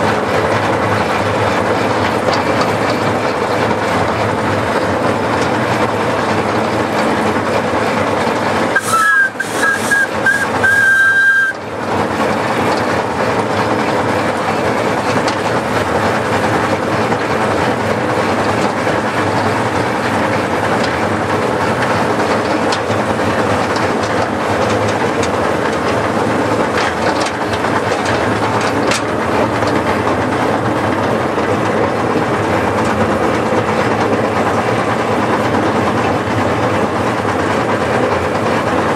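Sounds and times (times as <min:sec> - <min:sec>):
steam locomotive running: 0:00.0 - 0:38.9
two-note steam whistle: 0:08.8 - 0:11.6.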